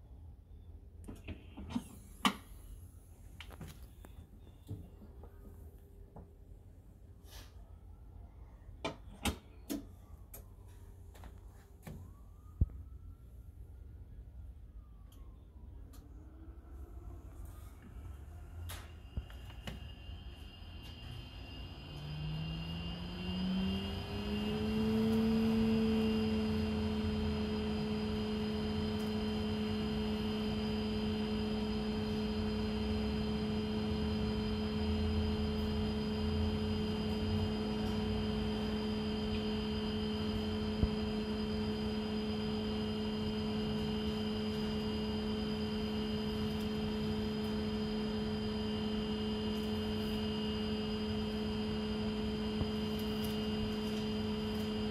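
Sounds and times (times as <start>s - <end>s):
centrifuge motor whine: 16.0s - 54.9s.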